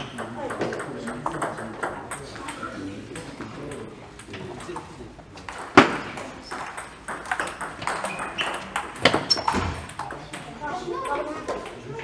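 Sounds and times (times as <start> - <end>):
table tennis ball clicking: 0.0 - 11.8.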